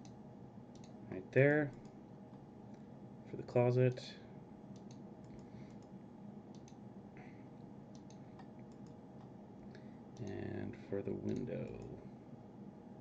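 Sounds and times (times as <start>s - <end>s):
computer mouse clicking: 0.0s - 1.0s, 4.7s - 6.8s, 7.9s - 10.4s, 11.2s - 12.0s
faint steady hum: 0.0s - 13.0s.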